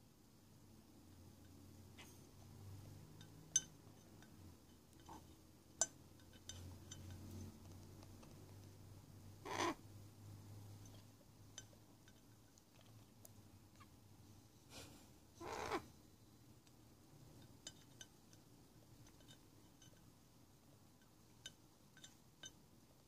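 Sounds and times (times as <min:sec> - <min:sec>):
clinks on glass jar: 0:03.1 - 0:07.4, 0:17.4 - 0:20.1, 0:21.4 - 0:22.6.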